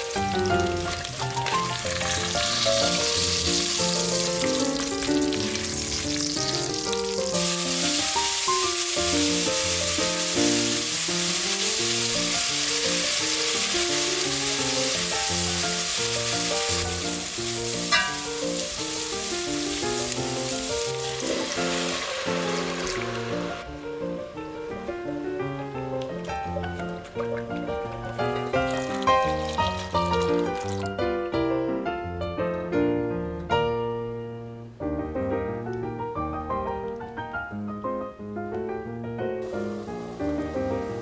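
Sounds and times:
onions frying and sizzling: 0:00.0 - 0:31.0, 0:39.4 - 0:41.0
background music: 0:00.0 - 0:41.0.

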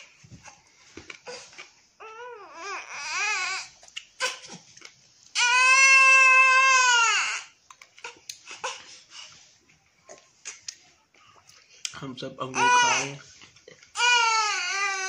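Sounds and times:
baby shrieking: 0:05.4 - 0:07.6, 0:12.5 - 0:13.2, 0:14.0 - 0:15.0.

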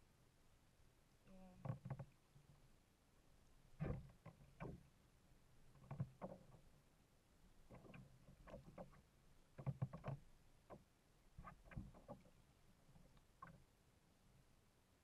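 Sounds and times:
water splashing against kayak hull: 0:07.7 - 0:10.8, 0:11.4 - 0:13.6.

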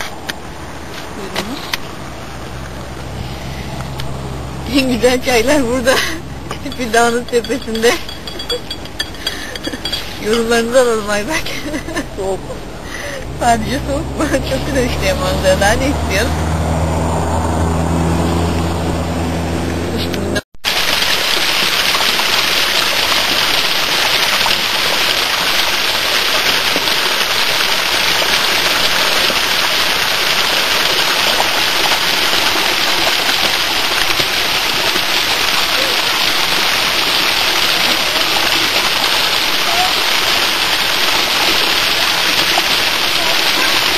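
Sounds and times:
waterfall splashing onto rocks: 0:05.6 - 0:12.2, 0:20.6 - 0:43.9.

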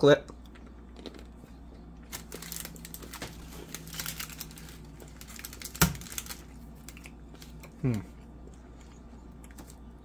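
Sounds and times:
foil wrappers crinkling: 0:02.0 - 0:08.0.

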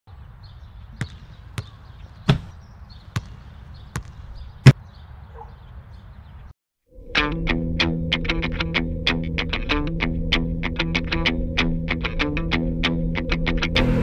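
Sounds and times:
basketball bouncing on asphalt: 0:00.4 - 0:05.0.

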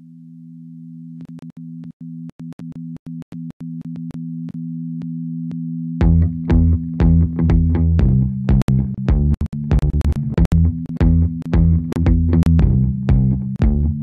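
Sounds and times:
clicks in drone gaps: 0:06.0 - 0:14.0
electronic beat with bass and drums: 0:06.0 - 0:14.0
low synthesizer drone: 0:06.0 - 0:14.0.

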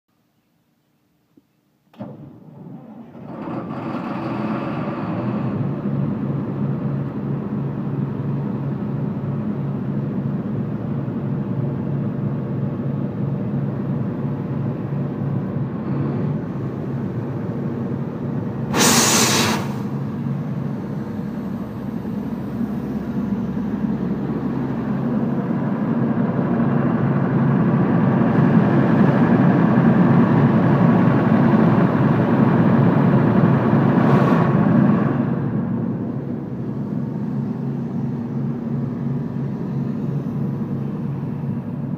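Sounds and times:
air compressor engine running: 0:15.6 - 0:27.0
short loud hiss: 0:18.7 - 0:20.1.

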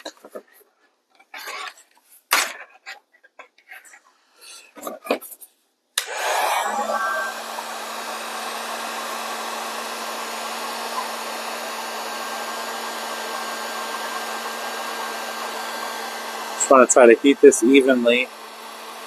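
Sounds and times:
fan motor hum: 0:06.0 - 0:19.0
heat gun blowing hot air: 0:06.0 - 0:19.0.

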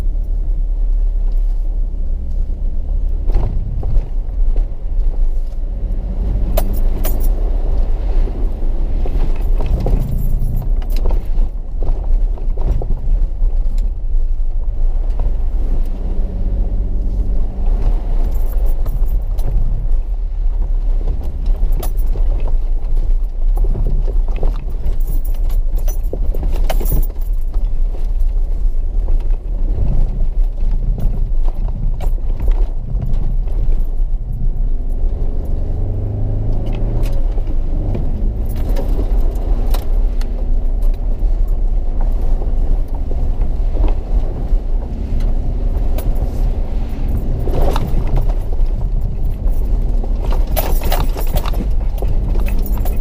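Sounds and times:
knocks and rattles over rough ground: 0:00.0 - 0:53.0
vehicle engine running at low speed: 0:00.0 - 0:53.0.

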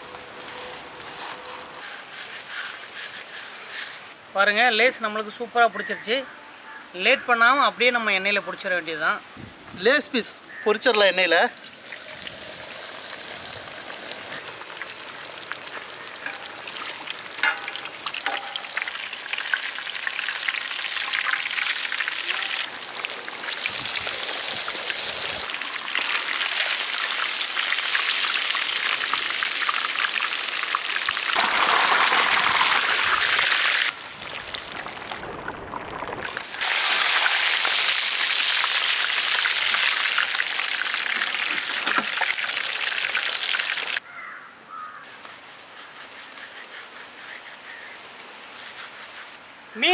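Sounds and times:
fish deep-frying in hot oil: 0:11.6 - 0:44.0.

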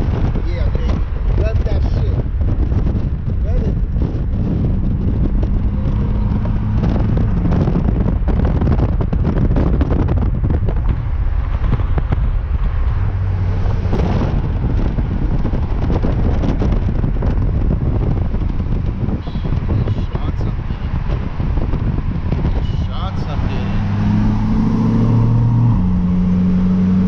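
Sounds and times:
car exhaust accelerating hard: 0:00.0 - 0:27.0
wind buffeting microphone: 0:00.0 - 0:27.0
exhaust crackling pops: 0:02.3 - 0:20.0.

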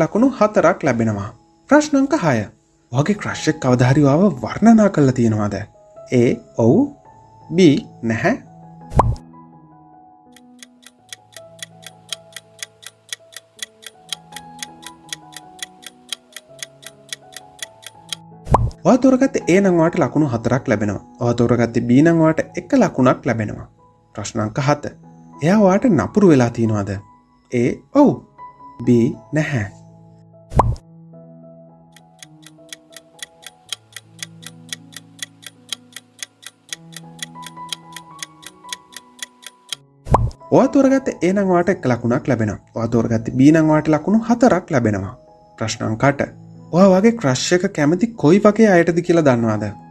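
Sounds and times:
clock ticking: 0:10.4 - 0:18.2, 0:32.0 - 0:39.8.

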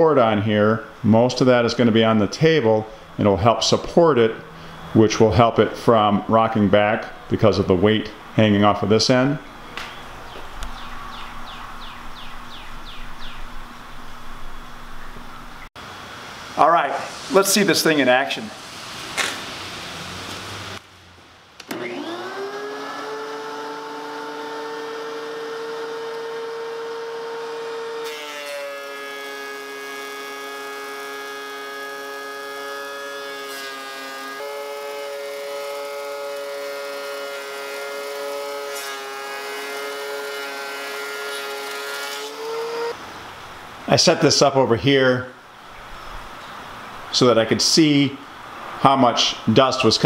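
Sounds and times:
thickness planer whining: 0:21.6 - 0:43.0
board being planed: 0:21.7 - 0:43.0.

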